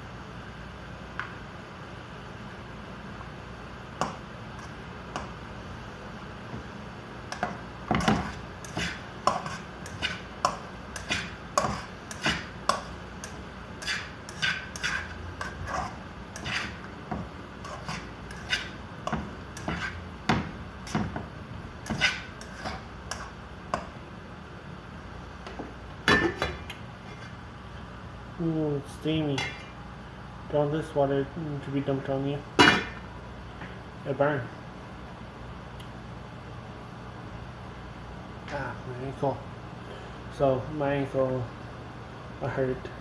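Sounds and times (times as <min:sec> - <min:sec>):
metal pot lid clank: 0:32.6 - 0:33.0.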